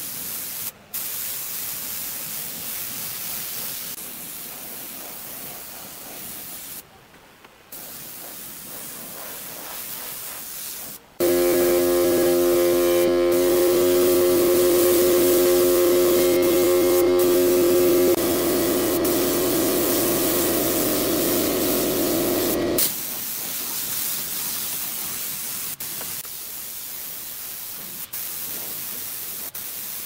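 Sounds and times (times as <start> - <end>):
spray gun hissing: 0.0 - 6.8, 7.7 - 30.0
air compressor humming: 11.2 - 22.9.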